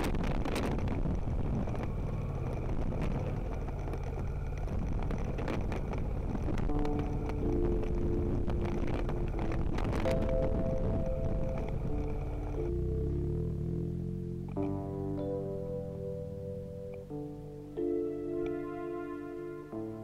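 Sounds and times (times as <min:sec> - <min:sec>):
wind noise on microphone: 0:00.0 - 0:13.2
motorcycle engine running: 0:00.0 - 0:17.0
background music: 0:06.6 - 0:20.0.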